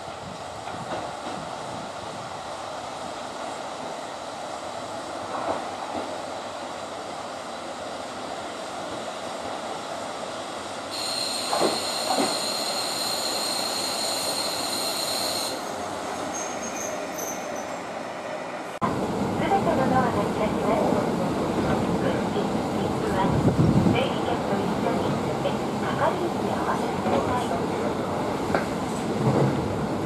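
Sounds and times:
diesel railcar engine and wheels: 0.0s - 30.0s
high brake squeal: 10.9s - 17.8s.

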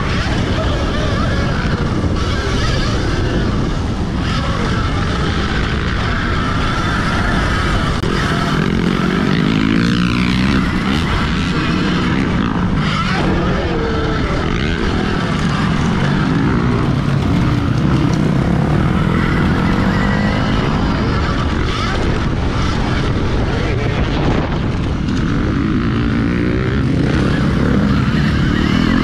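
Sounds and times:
wind and riding noise: 0.0s - 29.0s.

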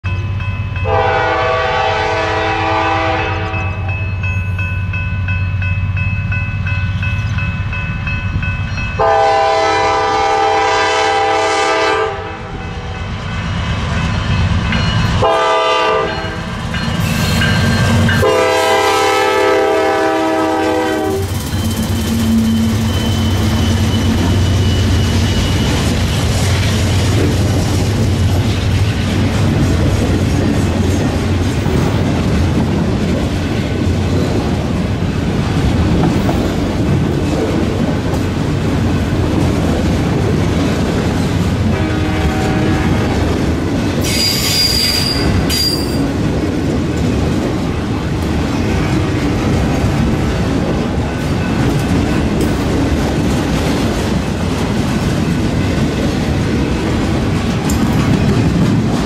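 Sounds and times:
locomotive horn blasts: 0.8s - 3.9s, 9.0s - 13.0s, 15.2s - 16.4s, 18.1s - 21.3s, 41.7s - 43.2s.

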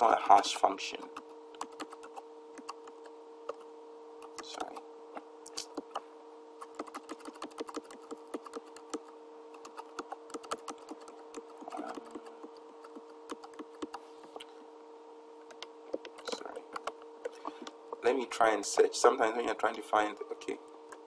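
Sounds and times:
steady electrical hum: 0.0s - 21.0s
keyboard keys clicking: 1.6s - 3.6s, 6.7s - 14.0s.

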